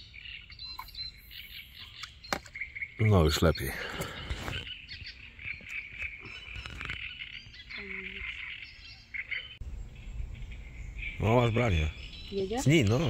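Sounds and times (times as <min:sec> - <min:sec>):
high chirping and trilling: 0:04.6 - 0:13.0.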